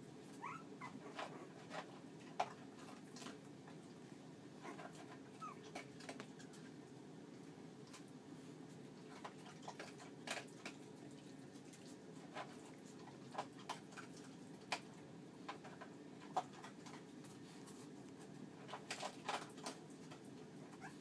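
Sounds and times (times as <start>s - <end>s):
puppies scrabbling in plastic bed: 0.4s - 3.5s, 4.6s - 6.8s, 9.0s - 11.0s, 11.9s - 21.0s.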